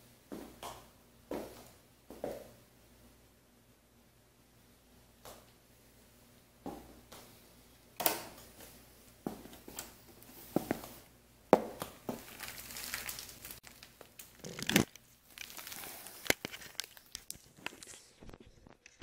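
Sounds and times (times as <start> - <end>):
camera handling rustling and scraping: 14.4 - 15.0, 16.2 - 18.0.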